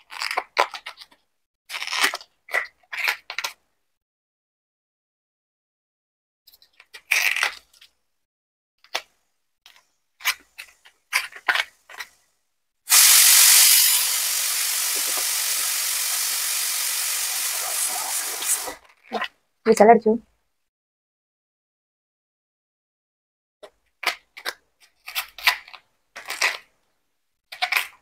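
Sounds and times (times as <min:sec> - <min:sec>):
pressure cooker whistle hissing: 0:12.9 - 0:18.8.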